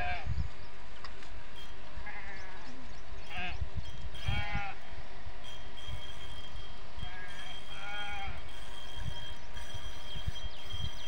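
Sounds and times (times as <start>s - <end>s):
wind on microphone: 0.0s - 11.0s
livestock bleating: 2.0s - 2.7s, 4.2s - 4.8s, 7.0s - 8.7s.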